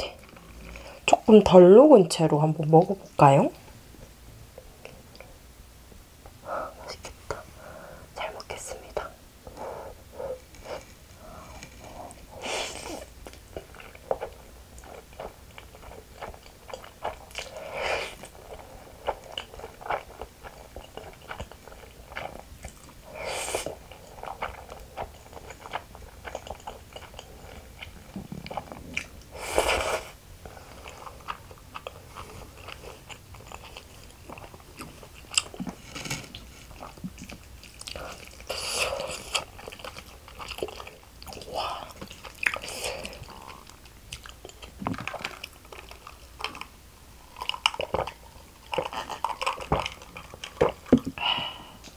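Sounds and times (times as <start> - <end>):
wet chewing: 10.3 - 51.1.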